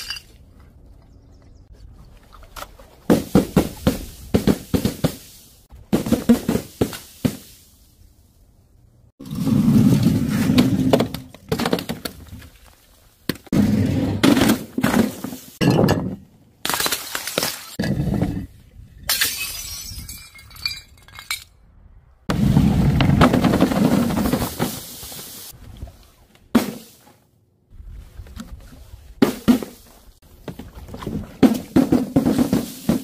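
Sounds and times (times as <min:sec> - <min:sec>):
glass shards clinking: 0:00.0 - 0:00.4, 0:19.1 - 0:21.5
bottles crashing on paving: 0:19.1 - 0:21.5
glass shattering: 0:19.1 - 0:21.5.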